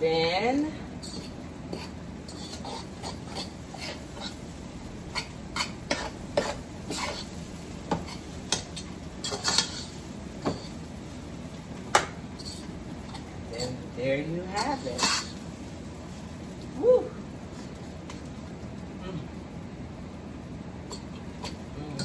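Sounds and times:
fork scraping cooking pot: 1.0s - 4.4s, 5.1s - 10.8s, 14.6s - 15.4s.

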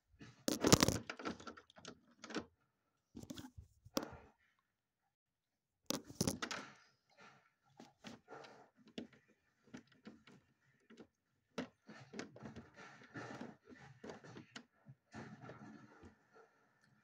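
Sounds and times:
small clicks taps and rustles: 0.5s - 2.5s, 5.9s - 6.7s.

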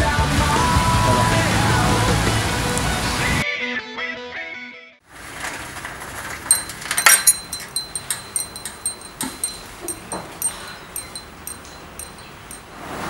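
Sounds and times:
metal wind chime ringing: 6.4s - 12.7s.

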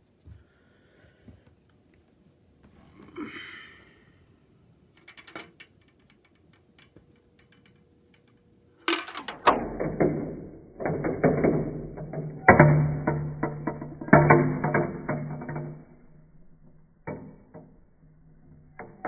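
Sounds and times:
marbles clicking and clattering: 4.9s - 12.6s.

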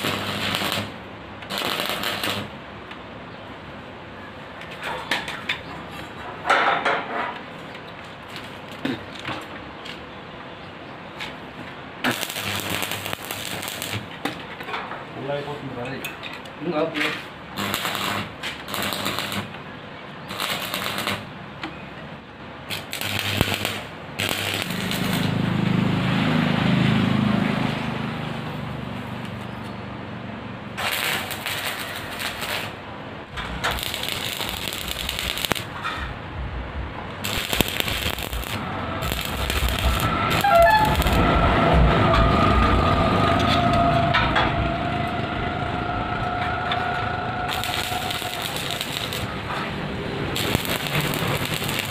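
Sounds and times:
welding arc crackling and hissing: 0.0s - 2.6s, 12.0s - 14.2s, 17.5s - 19.6s, 20.3s - 21.3s, 22.7s - 25.5s, 30.7s - 32.8s, 33.4s - 35.7s, 37.1s - 41.3s, 47.5s - 51.9s
low engine-like hum: 24.4s - 30.8s, 33.1s - 51.8s
two-tone whine: 36.8s - 51.9s.

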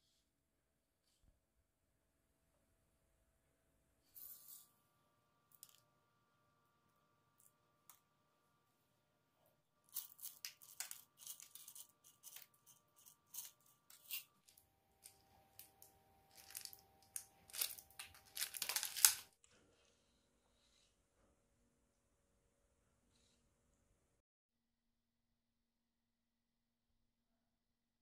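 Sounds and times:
paper liners crackling: 9.9s - 19.3s
sprinkles rattling onto cakes: 15.1s - 19.3s.

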